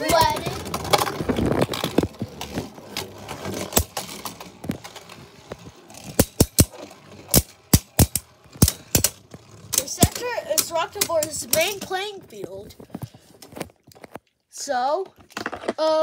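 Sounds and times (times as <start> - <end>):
spinning tops whirring: 0.0 - 12.0
spinning tops clacking: 3.0 - 12.0.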